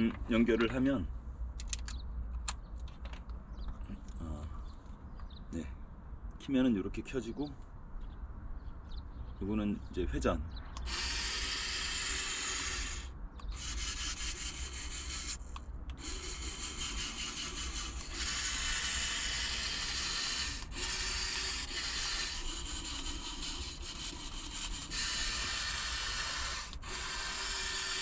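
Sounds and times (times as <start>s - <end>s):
gear motors whirring: 10.7s - 28.0s.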